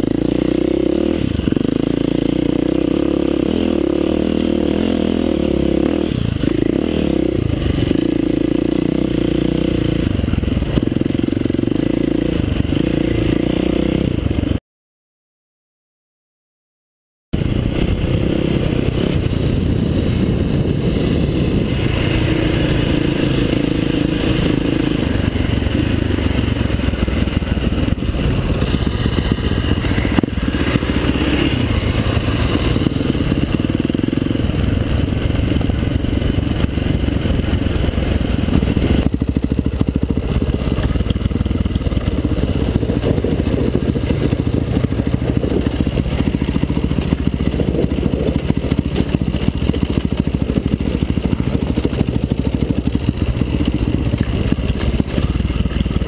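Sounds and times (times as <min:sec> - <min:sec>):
motorcycle engine running: 0:00.0 - 0:14.6, 0:17.4 - 0:56.0.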